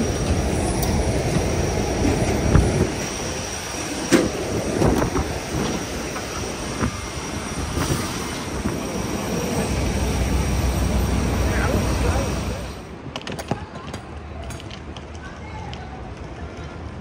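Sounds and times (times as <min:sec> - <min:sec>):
aircraft cabin rumble and hum: 0:00.0 - 0:12.9.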